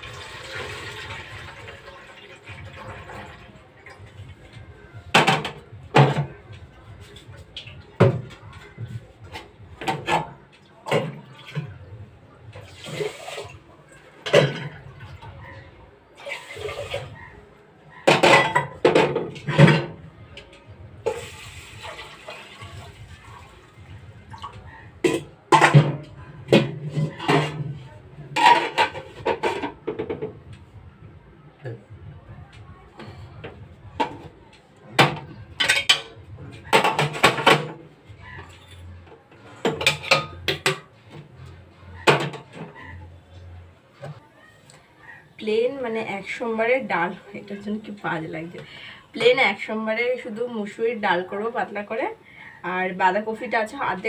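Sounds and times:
water pouring into pot: 0:00.0 - 0:04.1, 0:12.6 - 0:13.6, 0:16.2 - 0:17.1, 0:21.0 - 0:24.5
metal pots and lids clanking: 0:09.3 - 0:12.0, 0:14.2 - 0:14.9, 0:18.0 - 0:20.1, 0:25.0 - 0:30.4, 0:35.0 - 0:41.2, 0:42.0 - 0:43.1.

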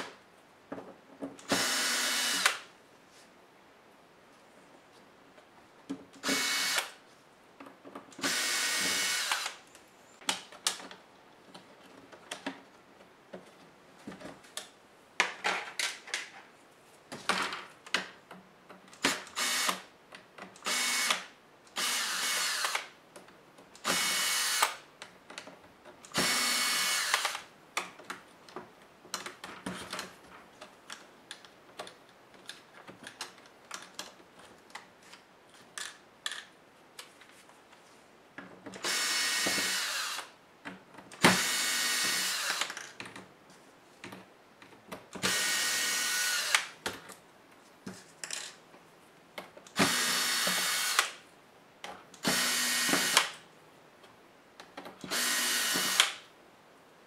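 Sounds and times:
electric screwdriver whirring: 0:01.5 - 0:02.6, 0:06.2 - 0:07.0, 0:08.2 - 0:09.6, 0:19.1 - 0:19.8, 0:20.6 - 0:21.2, 0:21.8 - 0:22.9, 0:23.8 - 0:24.8, 0:26.1 - 0:27.4, 0:38.8 - 0:40.3, 0:41.3 - 0:42.8, 0:45.2 - 0:46.7, 0:49.8 - 0:51.2, 0:52.2 - 0:53.3, 0:55.0 - 0:56.2.

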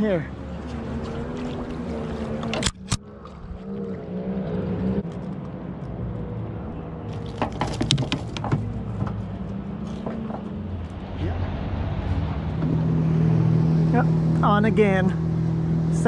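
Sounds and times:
outboard boat motor humming: 0:00.0 - 0:16.0
water moving along hull: 0:00.0 - 0:16.0
sharp knocks and clicks: 0:07.2 - 0:09.2.

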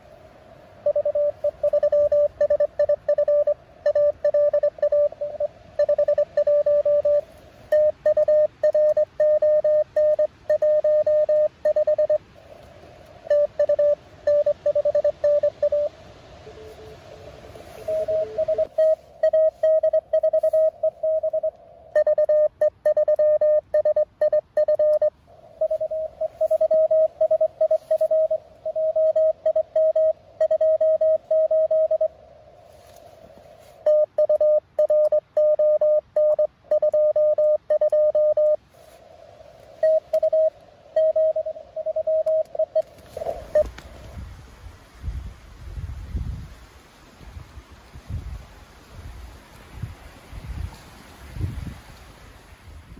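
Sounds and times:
fainter lower morse station: 0:00.0 - 0:44.2
receiver hiss: 0:00.0 - 0:45.0
morse code tone: 0:00.8 - 0:12.2, 0:13.2 - 0:39.0, 0:39.8 - 0:43.7.

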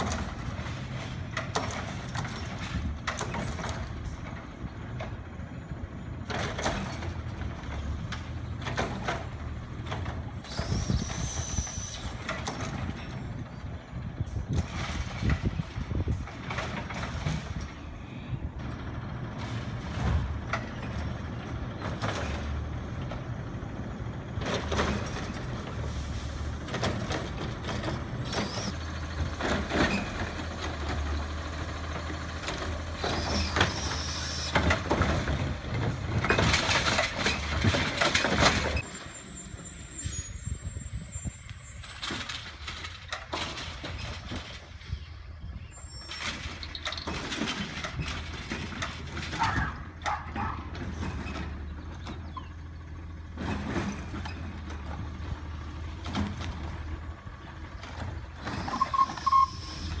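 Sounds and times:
hydraulic arm lifting a cart: 0:00.0 - 0:18.1, 0:23.9 - 1:00.0
diesel engine running loud: 0:00.0 - 1:00.0.

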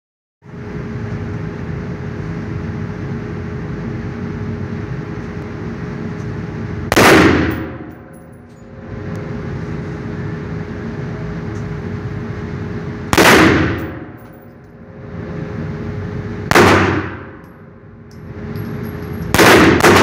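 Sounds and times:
steady background hum: 0:00.4 - 0:20.0
rifle shot: 0:06.9 - 0:07.9, 0:13.1 - 0:14.1, 0:16.5 - 0:17.4, 0:19.3 - 0:20.0.

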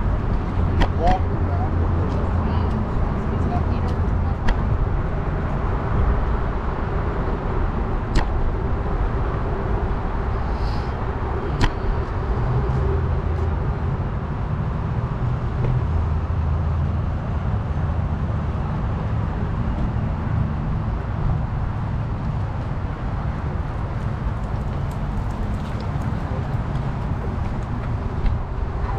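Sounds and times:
wind rumbling: 0:00.0 - 0:28.9.

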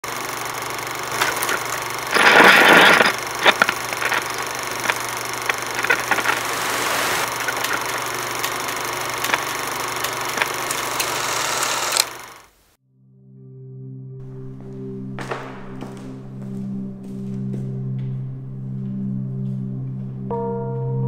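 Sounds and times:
low hum: 0:00.1 - 0:12.4
film crackle with clicks and pops: 0:00.4 - 0:12.6.

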